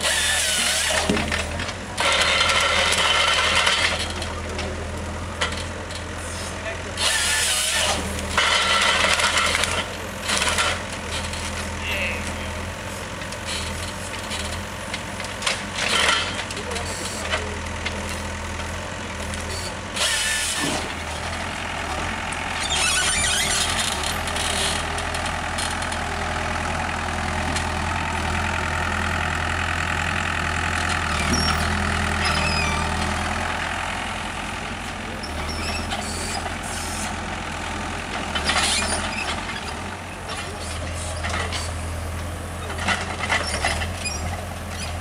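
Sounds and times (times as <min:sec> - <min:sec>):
diesel engine humming: 0:00.0 - 0:45.0.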